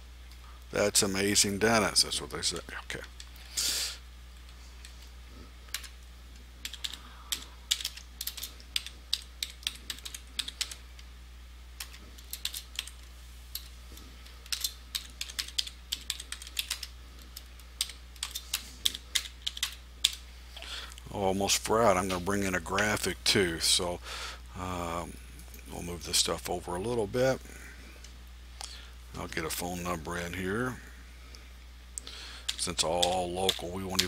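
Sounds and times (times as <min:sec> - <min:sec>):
low electrical hum: 0:00.0 - 0:34.0.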